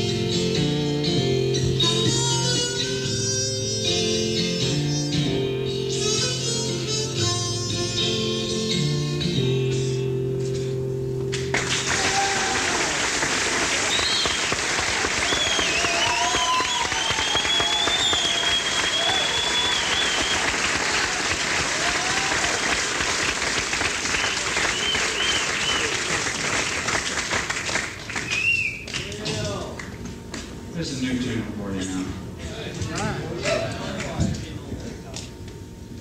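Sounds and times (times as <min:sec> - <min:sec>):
audience applauding: 0:11.3 - 0:30.0
whistles and shouts: 0:13.9 - 0:14.6, 0:15.2 - 0:20.6, 0:24.1 - 0:26.0, 0:28.2 - 0:29.0.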